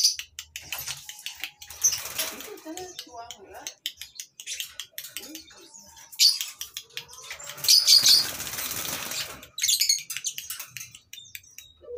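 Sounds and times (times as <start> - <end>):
lovebirds chirping: 0.0 - 11.9
wings flapping: 0.7 - 3.0, 7.4 - 9.7.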